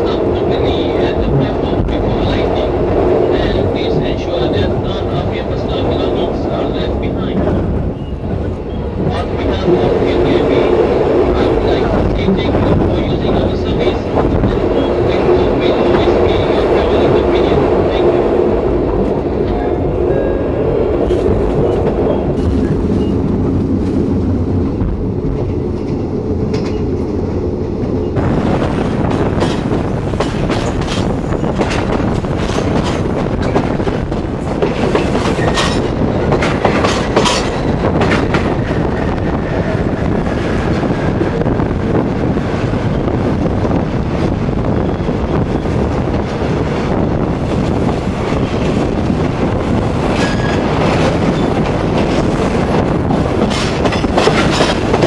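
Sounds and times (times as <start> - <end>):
train wheels rumbling: 0.0 - 55.0
wheels clacking over rail joints: 29.1 - 40.9, 47.6 - 55.0.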